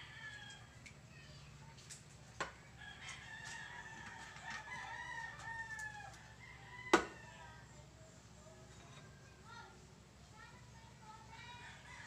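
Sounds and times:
rooster crowing: 2.8 - 7.4.

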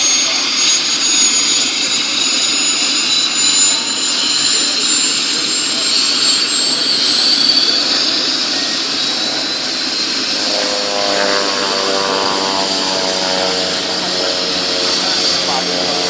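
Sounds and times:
helicopter turbine whine: 0.0 - 16.0.

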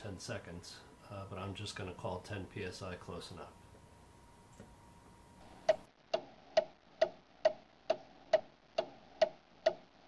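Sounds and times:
clock ticking: 5.6 - 10.0.

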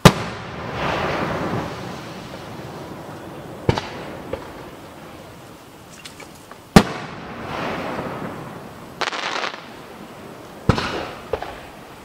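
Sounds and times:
firework bangs with echo: 0.0 - 4.8, 6.7 - 9.8, 10.6 - 11.7
firework crackle: 0.0 - 12.0.

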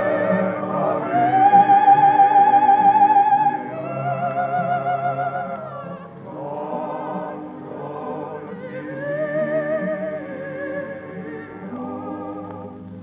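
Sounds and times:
operatic voice singing: 0.0 - 12.8
gramophone record accompaniment: 0.0 - 13.0.

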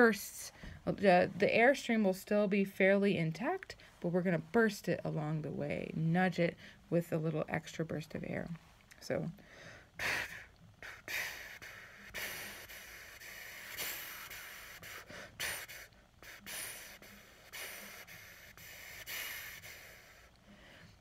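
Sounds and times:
short breath bursts: 9.4 - 21.0
breath hissing on hand: 9.6 - 20.9.

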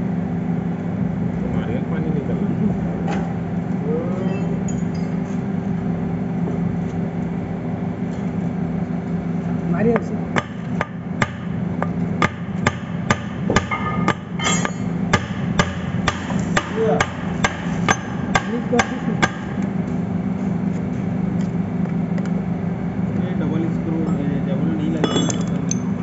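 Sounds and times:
low machinery hum: 0.0 - 26.0
hammering: 10.4 - 19.7.

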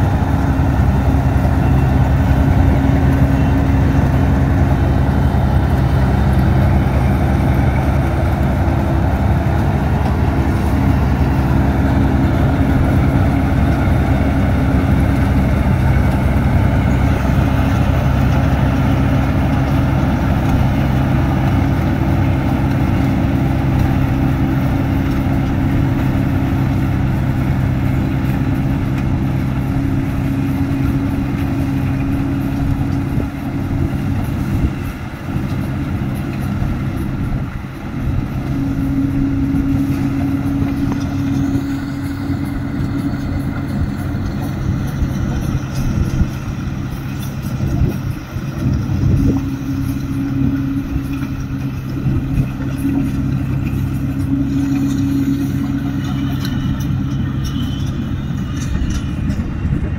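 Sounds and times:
combine harvester diesel engine: 0.0 - 59.9.

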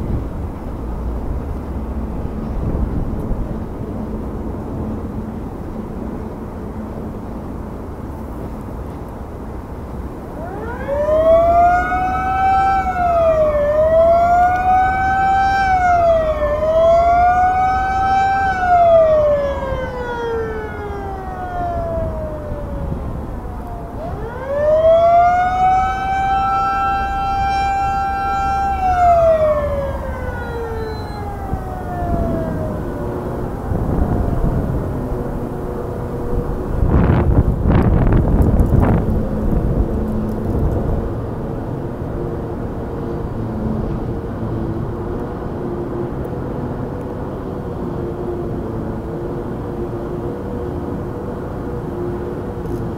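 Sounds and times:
drawbridge warning siren wailing: 0.0 - 52.9
low traffic rumble: 0.0 - 52.9.

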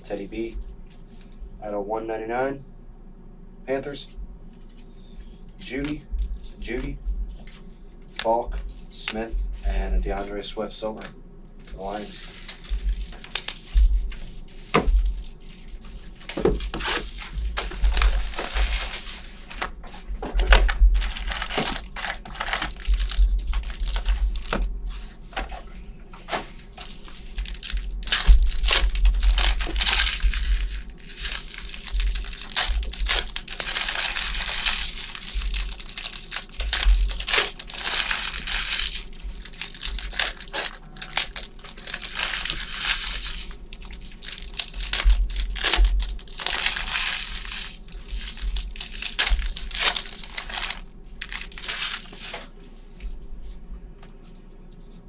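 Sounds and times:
wrappers tearing and crinkling: 11.5 - 19.8, 20.4 - 24.7, 26.3 - 52.5.

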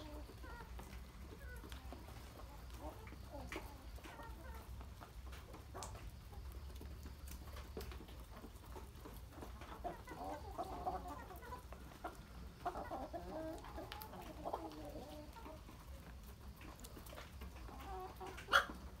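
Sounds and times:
chickens clucking: 0.0 - 19.0.

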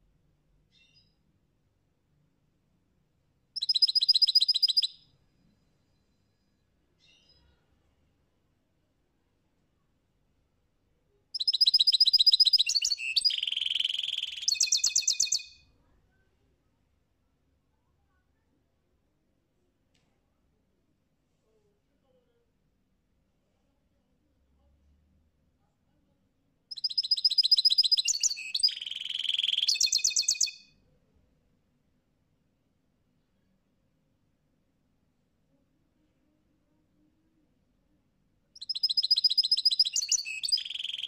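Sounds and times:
goldfinch singing: 3.6 - 5.0, 11.4 - 15.5, 26.7 - 30.6, 38.6 - 41.0.

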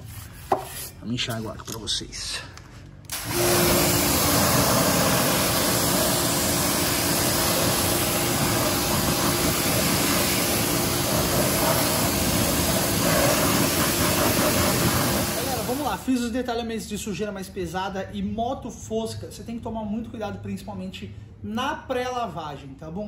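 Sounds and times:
pressure washer motor hum: 3.1 - 16.0
water jet spraying: 3.1 - 16.0.

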